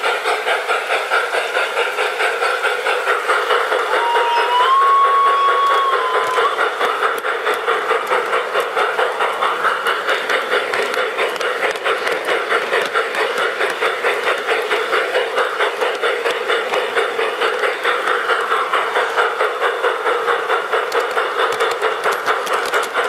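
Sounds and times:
model steam locomotive chuffing: 0.0s - 23.0s
locomotive whistle: 3.9s - 6.6s.

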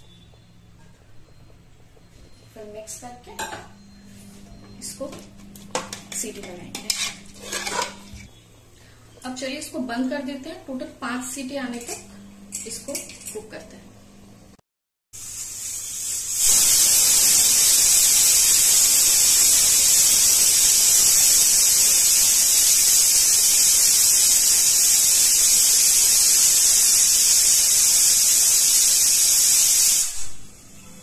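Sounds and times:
pressure cooker whistling: 0.0s - 3.0s, 15.2s - 31.0s.

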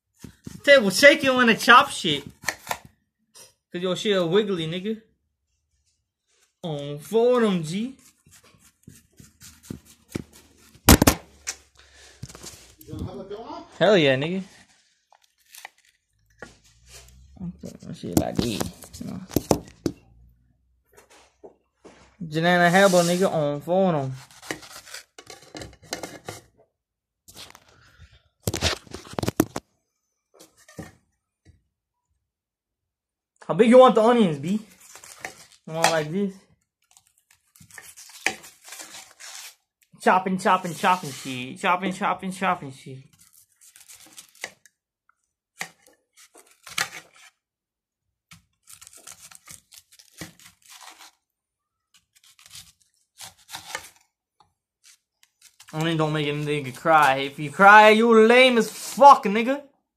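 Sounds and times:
knife cutting onion: 8.0s - 11.7s, 24.1s - 26.3s, 48.3s - 51.2s, 51.9s - 54.0s.

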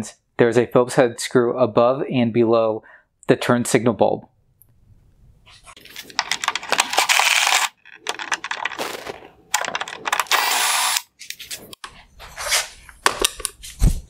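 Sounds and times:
handling clicks and rattles: 5.8s - 10.4s
power screwdriver spinning: 5.8s - 11.1s.

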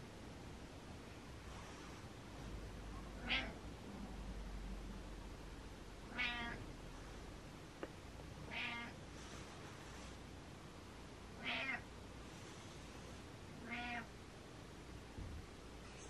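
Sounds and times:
cat meowing: 3.2s - 3.6s, 6.1s - 6.6s, 8.5s - 9.0s, 11.4s - 11.8s, 13.6s - 14.1s.

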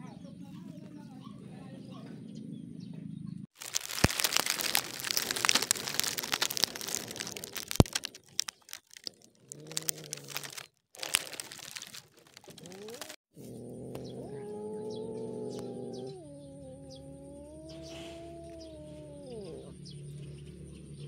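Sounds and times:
grass crackling and rustling: 3.5s - 13.2s.

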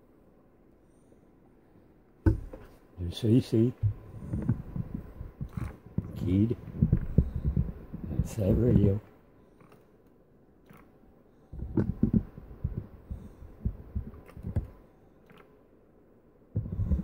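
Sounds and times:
handheld camera thumps and rubbing: 3.8s - 8.8s, 11.6s - 14.8s, 16.6s - 17.0s.

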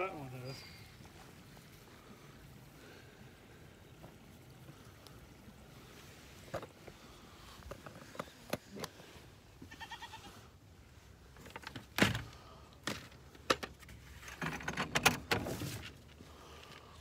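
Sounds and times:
goat bleating: 9.6s - 10.5s.

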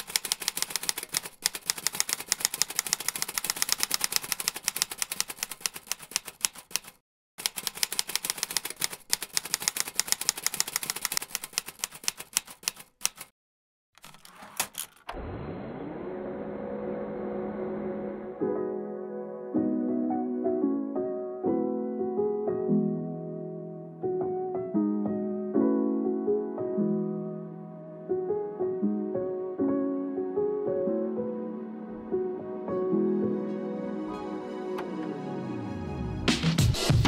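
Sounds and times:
typewriter keys clacking: 0.0s - 13.3s, 14.0s - 15.1s
soft ambient music: 15.8s - 36.3s.

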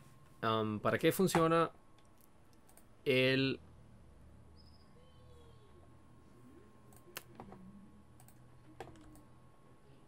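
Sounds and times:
computer mouse clicks: 8.2s - 9.3s.

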